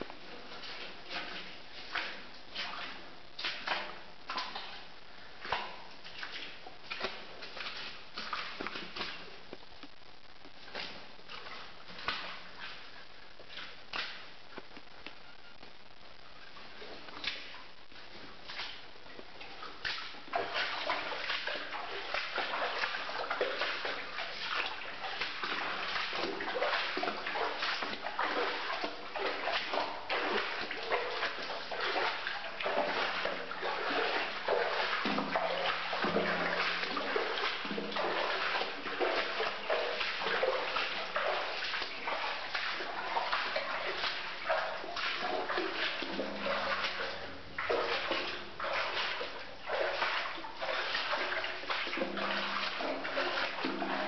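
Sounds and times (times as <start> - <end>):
footsteps splashing through water: 0.0 - 15.2, 16.5 - 54.0.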